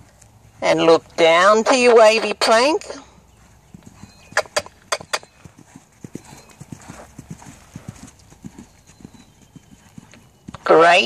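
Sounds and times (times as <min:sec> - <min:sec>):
hoofbeats on sand: 0:03.0 - 0:11.0.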